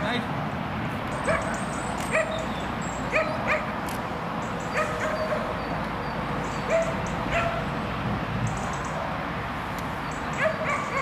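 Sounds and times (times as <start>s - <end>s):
dog barking and yipping: 1.2s - 2.4s, 3.1s - 3.7s, 4.7s - 5.5s, 6.6s - 7.7s, 10.4s - 11.0s.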